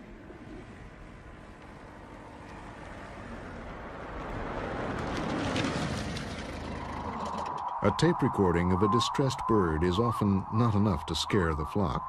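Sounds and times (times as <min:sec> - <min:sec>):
car driving up: 0:00.4 - 0:09.0.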